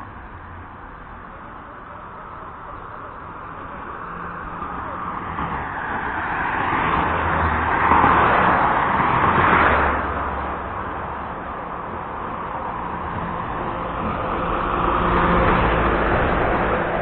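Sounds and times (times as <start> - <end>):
vehicle passing by: 3.4 - 17.0.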